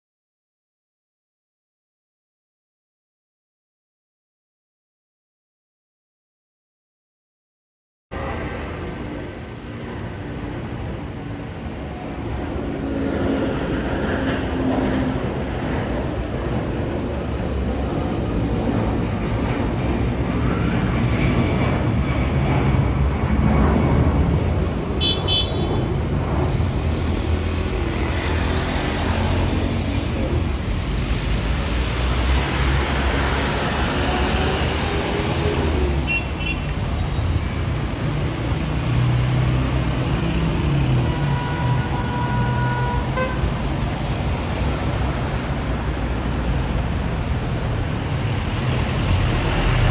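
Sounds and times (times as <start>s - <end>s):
jet engines rumbling overhead: 8.1s - 49.9s
street traffic: 8.1s - 49.9s
car horn beeps: 25.0s - 25.8s, 36.1s - 36.7s, 41.0s - 43.5s.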